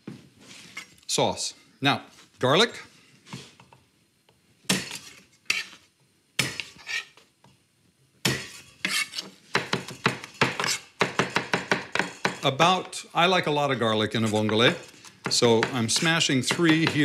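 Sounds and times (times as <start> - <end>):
knife chopping on wooden board: 8.2 - 12.4, 14.4 - 17.0.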